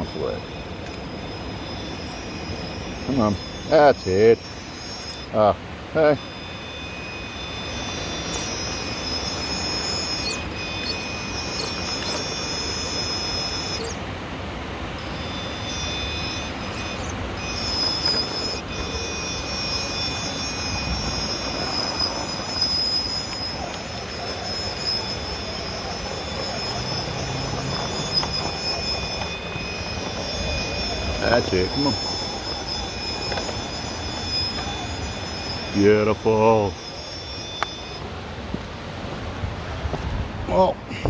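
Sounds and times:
electric motor whining: 0.0 - 14.1, 14.7 - 38.1.

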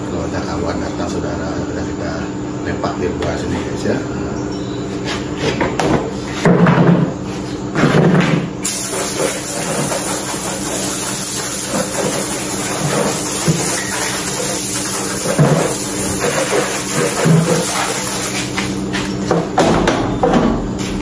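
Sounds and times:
plastic chairs knocking: 5.4 - 7.2, 7.8 - 8.5, 19.3 - 21.0
garden hose spraying water: 8.6 - 18.8.

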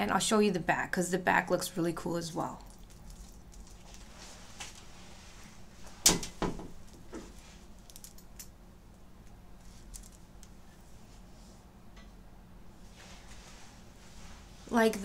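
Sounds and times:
metal chain clicks: 7.8 - 8.5.

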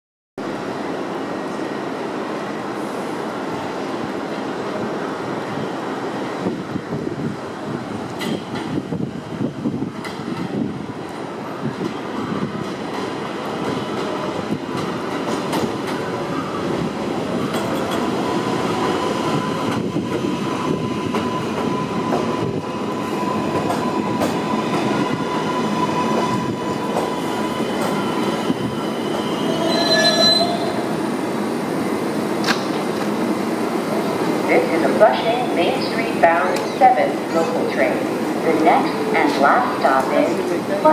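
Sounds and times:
train wheels rumbling on rail: 2.4 - 40.9
high wheel squeal: 23.0 - 31.0.

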